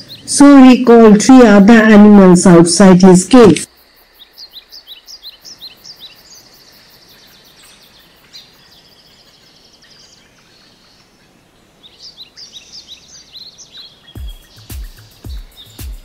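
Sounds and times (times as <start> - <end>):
small birds chirping: 0.0 - 16.0
rapid high bird chirps: 11.9 - 16.0
steady hiss: 14.0 - 16.0.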